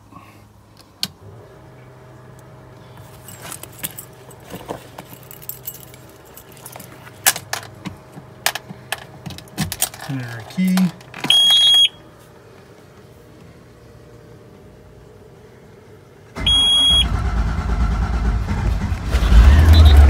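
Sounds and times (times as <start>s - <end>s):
blower humming: 0.9s - 20.0s
keys jangling: 3.2s - 7.7s.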